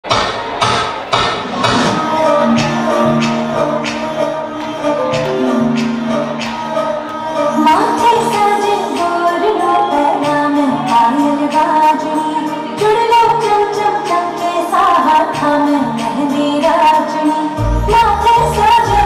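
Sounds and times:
song with singer over music: 1.4 - 19.0.

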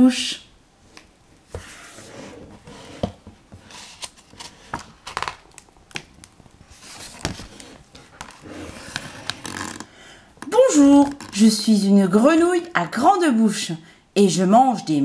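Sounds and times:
book pages turning: 3.6 - 9.9
paper rustling: 6.0 - 9.8.

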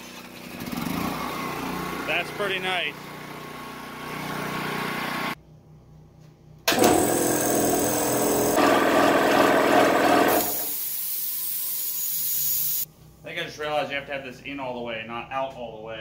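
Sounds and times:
steady hiss: 10.6 - 13.6.

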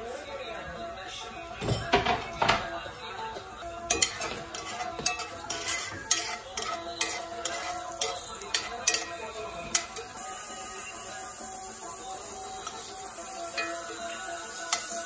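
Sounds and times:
metal spoon clinking on skillet: 3.9 - 11.0, 12.2 - 15.0.

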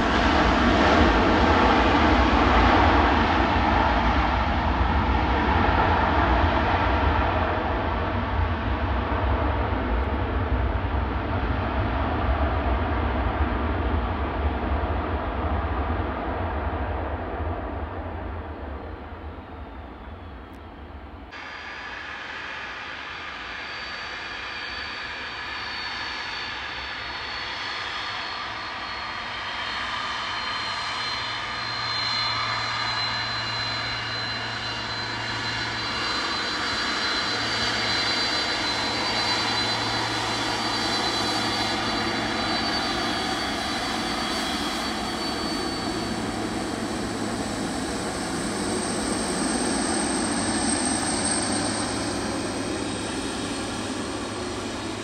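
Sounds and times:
jet engines roaring: 0.0 - 55.0
high-pitched whine: 21.4 - 55.0.

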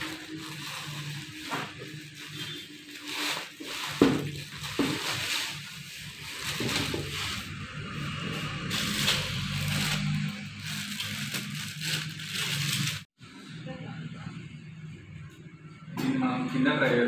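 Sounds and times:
bubble wrap and plastic crinkling: 0.0 - 13.1.

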